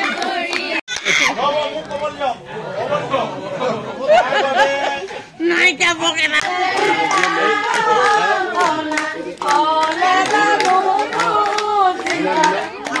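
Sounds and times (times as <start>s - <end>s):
rhythmic hand-clapping: 0.0s - 1.2s, 6.3s - 13.0s.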